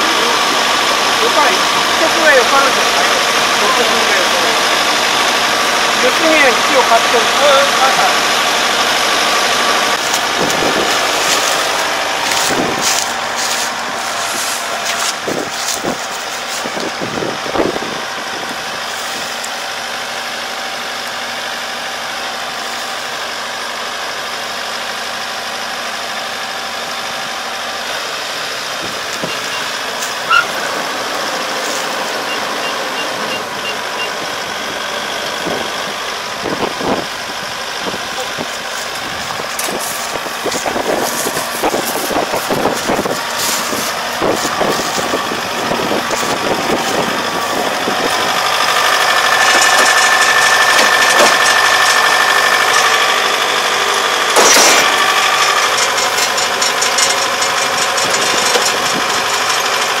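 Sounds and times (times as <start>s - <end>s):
engine running steadily: 0.0s - 60.0s
knocks and clatter: 49.3s - 52.9s, 54.3s - 59.9s.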